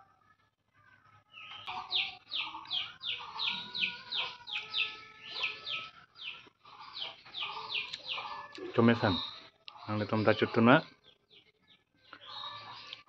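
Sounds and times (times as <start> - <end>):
fainter lower bird calls: 1.3 - 13.0
bird chirping rapidly: 1.4 - 11.1.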